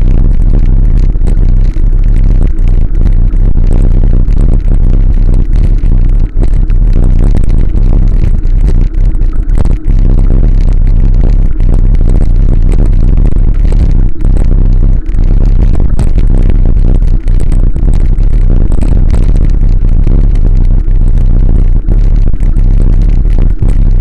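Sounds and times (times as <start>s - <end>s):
heavy wind rumble on microphone: 0.0s - 24.0s.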